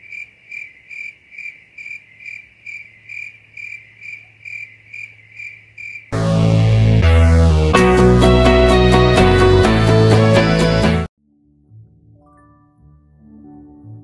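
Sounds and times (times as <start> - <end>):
cricket chirping: 0.0 - 6.2
loud music: 6.2 - 11.1.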